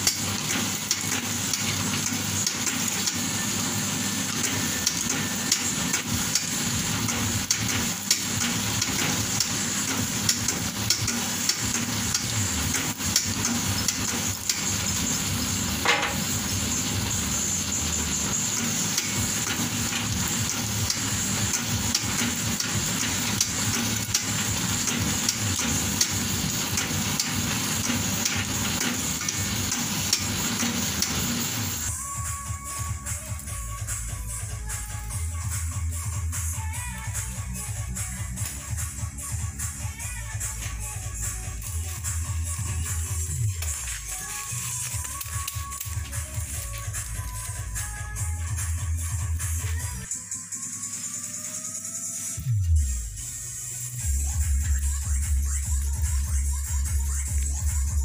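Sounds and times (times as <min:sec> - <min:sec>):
machine hum: 0:00.0 - 0:32.0.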